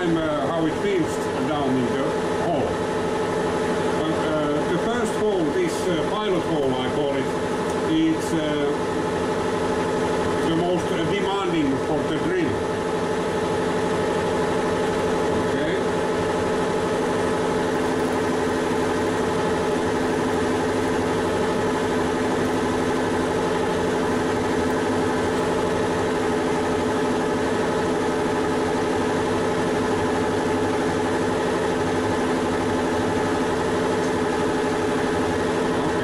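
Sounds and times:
lathe humming: 0.0s - 36.0s
drill fed into work: 14.7s - 36.0s.

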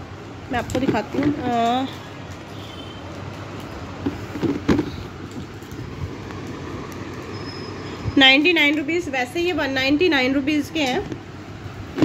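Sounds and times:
plastic container handled: 0.6s - 1.7s, 4.0s - 6.2s.

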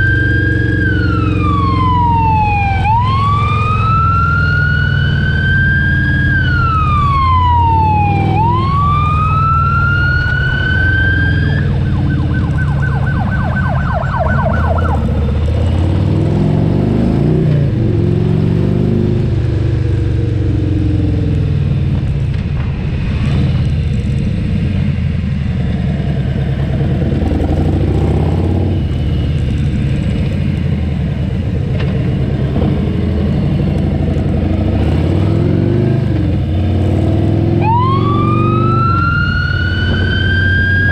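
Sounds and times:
emergency siren wailing and yelping: 0.0s - 16.9s, 37.2s - 40.9s
motorcycle engine drone: 0.0s - 40.9s.

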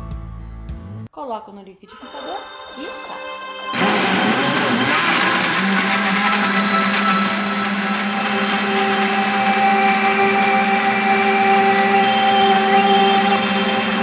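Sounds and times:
blender motor running: 3.7s - 14.0s.

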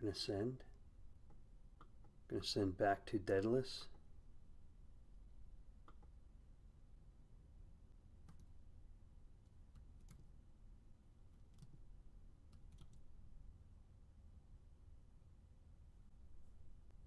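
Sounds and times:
low steady hum: 0.0s - 17.0s
keyboard and mouse clicks: 5.8s - 6.1s, 8.2s - 8.5s, 9.7s - 10.3s, 11.4s - 11.8s, 12.5s - 13.0s.

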